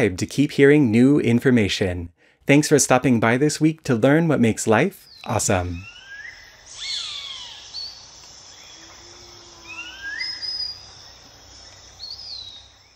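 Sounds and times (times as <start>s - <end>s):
birds whistling calls: 5.0s - 12.9s
high insect drone: 5.7s - 12.9s.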